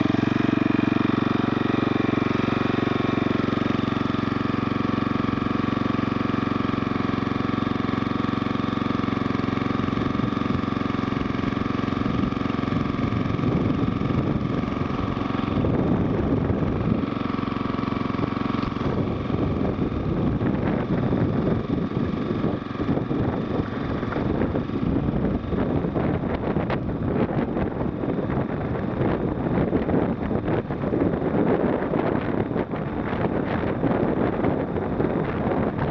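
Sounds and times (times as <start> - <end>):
small engine running: 0.0 - 35.9
wind buffeting microphone: 9.9 - 35.9.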